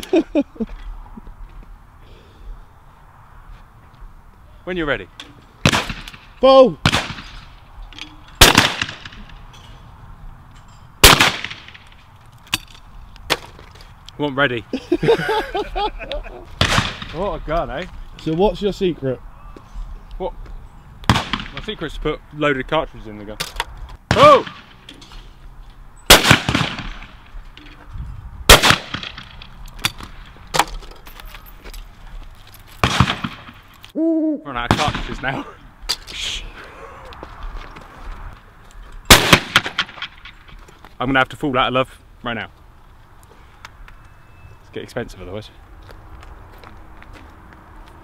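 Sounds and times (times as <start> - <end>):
shotgun shots: 5.6 - 7.5, 8.4 - 9.3, 11.0 - 11.8, 16.6 - 17.2, 21.0 - 21.7, 26.1 - 27.2, 28.5 - 29.4, 32.8 - 33.7, 34.7 - 35.2, 39.1 - 40.3.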